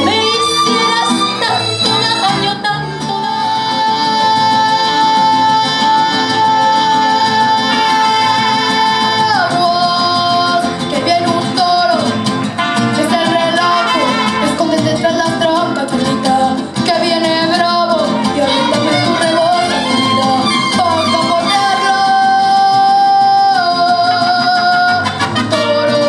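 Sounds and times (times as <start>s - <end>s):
woman singing: 0.0s - 12.3s, 12.9s - 26.0s
mariachi band playing: 0.0s - 26.0s.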